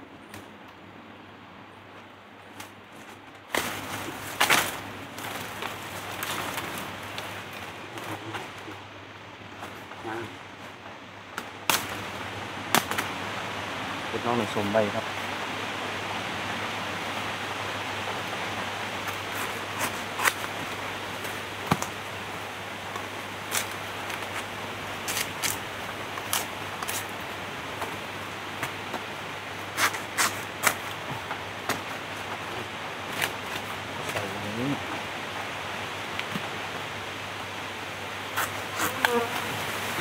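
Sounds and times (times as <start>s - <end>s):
steady hiss: 0.0s - 40.0s
bamboo shoots snapping: 11.4s - 12.0s, 12.7s - 13.1s, 19.1s - 20.6s, 22.9s - 24.4s, 25.0s - 27.1s, 29.8s - 31.0s.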